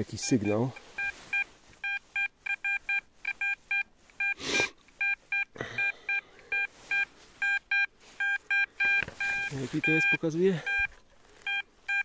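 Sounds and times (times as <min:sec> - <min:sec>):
metal detector short beeps: 0:00.4 - 0:10.9, 0:11.5 - 0:12.0.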